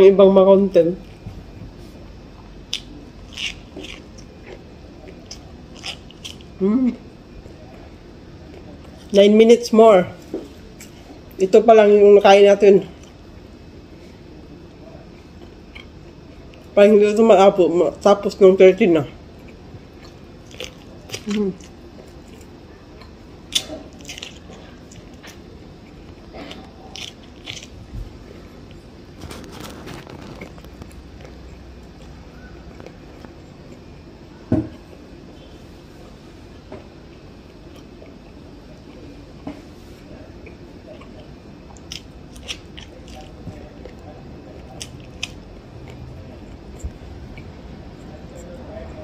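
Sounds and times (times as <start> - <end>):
crunching corn: 2.6 - 6.7, 19.4 - 33.9, 37.1 - 49.0
chewing mouth noises: 2.7 - 6.5.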